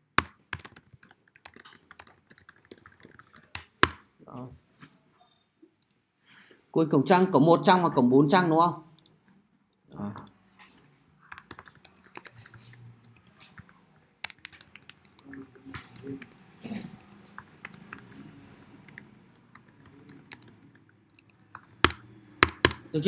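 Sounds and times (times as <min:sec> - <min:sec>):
computer keyboard typing: 0:00.0 - 0:04.0, 0:11.2 - 0:23.0.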